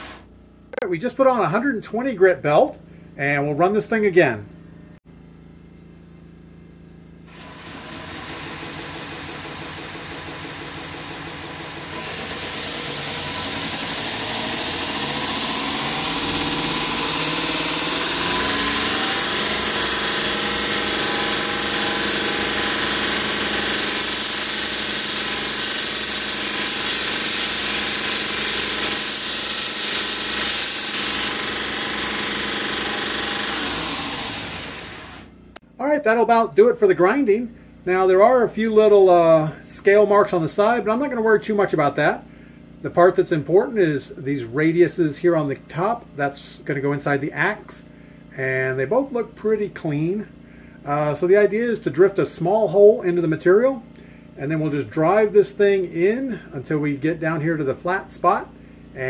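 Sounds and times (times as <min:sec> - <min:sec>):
belt grinder hum: 0:07.3 - 0:35.6.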